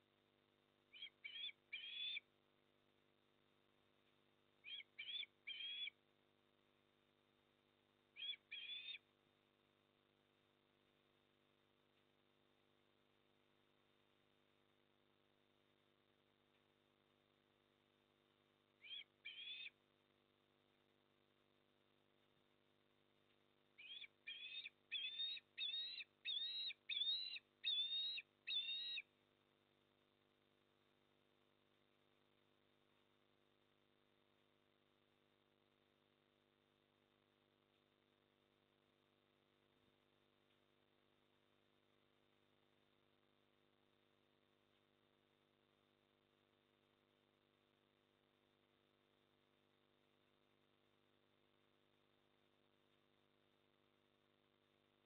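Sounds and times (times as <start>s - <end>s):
bird whistled chirping calls: 1.0s - 2.2s, 4.6s - 5.9s, 8.2s - 9.0s, 18.8s - 19.7s, 23.8s - 29.0s.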